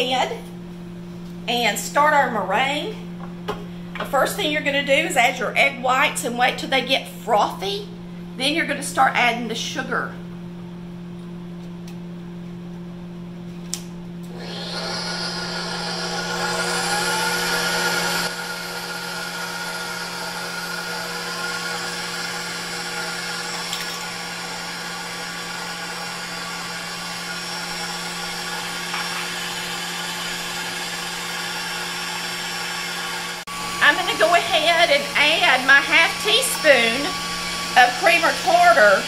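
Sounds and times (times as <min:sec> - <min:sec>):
stand mixer motor whining: 0:14.3 - 0:39.0
whisk whipping in metal bowl: 0:14.5 - 0:39.0.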